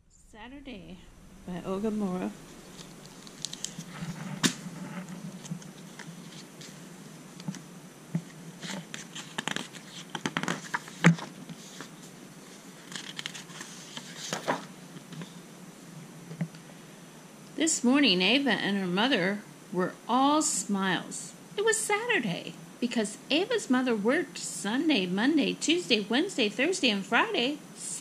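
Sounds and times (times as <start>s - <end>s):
pages turning and rustling: 2.7s - 7.6s, 8.2s - 15.4s.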